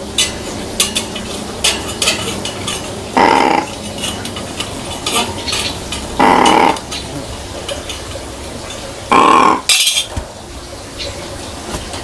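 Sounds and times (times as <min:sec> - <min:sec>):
crow cawing: 0:03.2 - 0:03.7, 0:06.2 - 0:06.8, 0:09.1 - 0:09.7.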